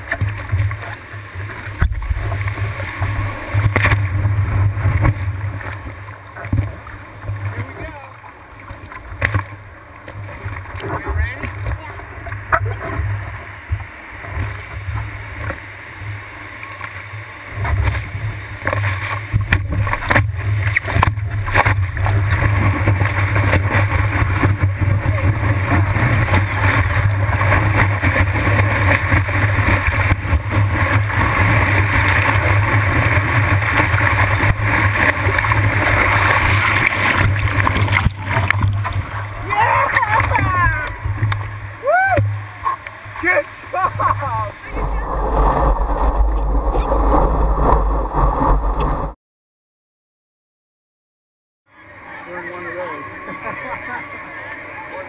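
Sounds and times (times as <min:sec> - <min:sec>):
whitewater rushing and splashing: 0:00.0 - 0:49.1
steady low rumble: 0:43.8 - 0:49.2.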